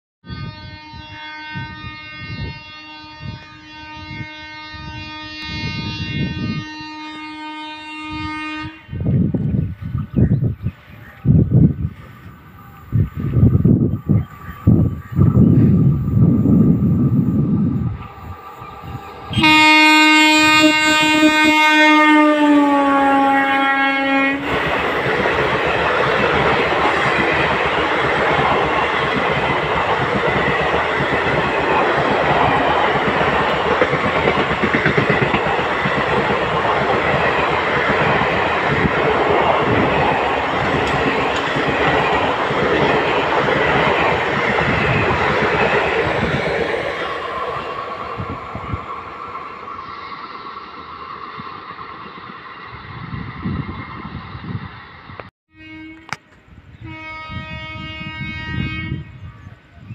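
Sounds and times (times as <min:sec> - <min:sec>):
train horn blast: 0:00.2 - 0:09.1, 0:18.8 - 0:24.5, 0:55.5 - 0:59.4
train wheels clattering on rails: 0:24.4 - 0:47.6.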